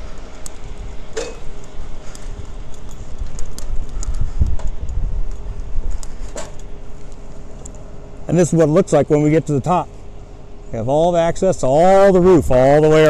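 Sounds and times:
wind rumble on microphone: 0:00.0 - 0:06.6, 0:12.0 - 0:13.0.

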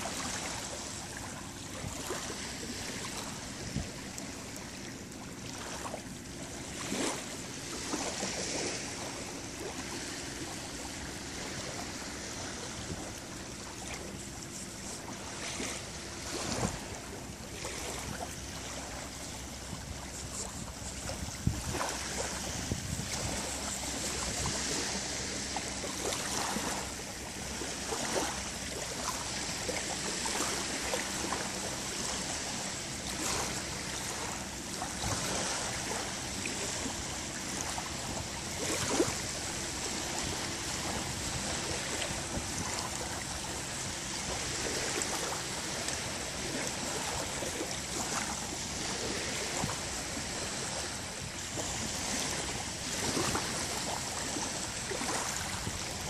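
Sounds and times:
small waves lapping on sand: 0:00.0 - 0:56.0.

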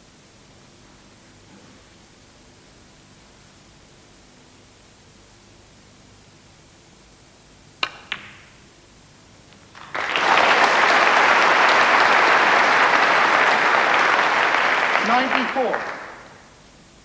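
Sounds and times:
snooker balls clicking: 0:07.8 - 0:08.5
audience applause: 0:09.7 - 0:16.5.

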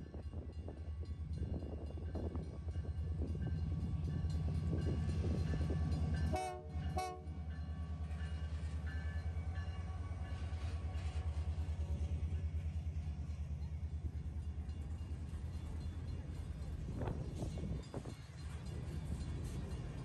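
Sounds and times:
diesel locomotive rumbling: 0:00.0 - 0:20.0
locomotive horn blasts: 0:06.2 - 0:07.5.

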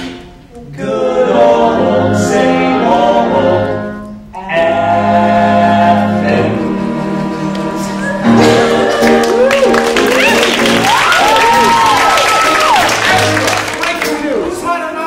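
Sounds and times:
voices singing in harmony: 0:00.0 - 0:09.4
instrumental accompaniment: 0:00.0 - 0:14.8.

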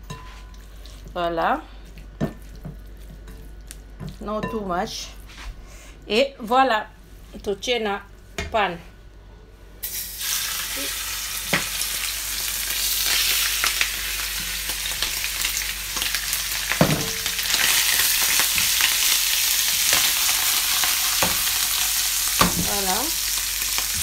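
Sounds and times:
shrimp sizzling in hot oil: 0:09.8 - 0:24.0.

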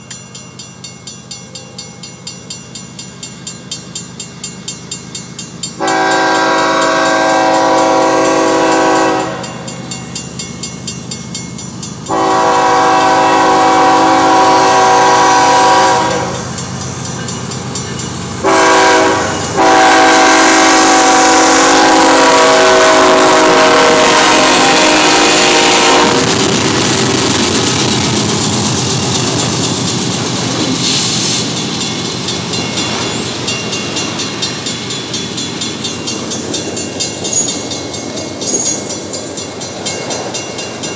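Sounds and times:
crossing bell dinging: 0:00.0 - 0:30.8, 0:31.4 - 0:40.9
train rumble with wheel clatter: 0:00.0 - 0:40.9
locomotive horn blasts: 0:05.8 - 0:09.6, 0:12.1 - 0:16.5, 0:18.4 - 0:26.5.

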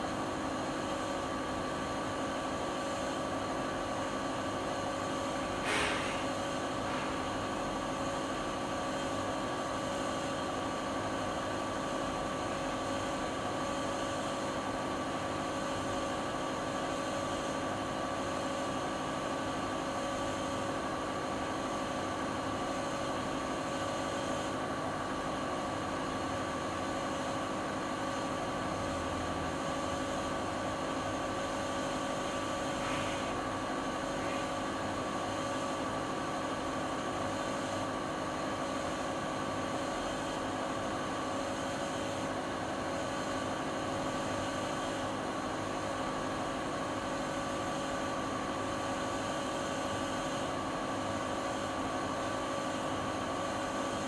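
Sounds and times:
washing machine spinning: 0:00.0 - 0:16.9, 0:24.5 - 0:49.2.

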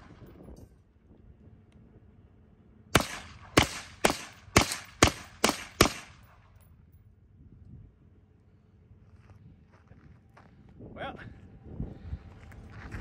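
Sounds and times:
suppressed rifle shots: 0:03.0 - 0:06.4.

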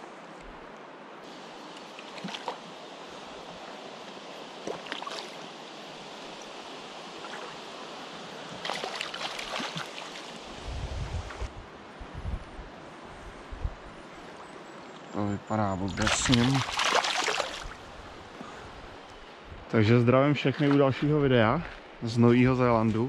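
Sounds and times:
river water rushing: 0:00.0 - 0:10.7, 0:16.1 - 0:18.2.

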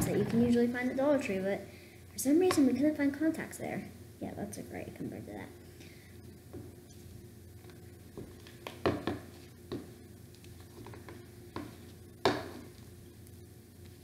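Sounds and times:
utensil stirring slime: 0:06.6 - 0:14.0.

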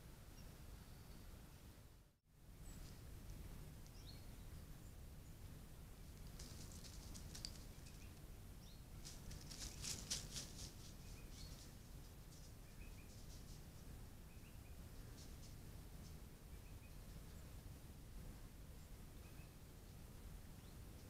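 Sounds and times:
low microphone hiss: 0:00.0 - 0:21.0
faint rustling and crackling: 0:06.1 - 0:08.3, 0:08.9 - 0:13.9.

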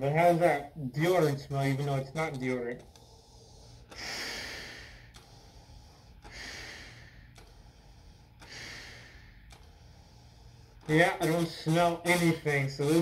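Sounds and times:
breathing through a gas mask: 0:02.9 - 0:13.0.

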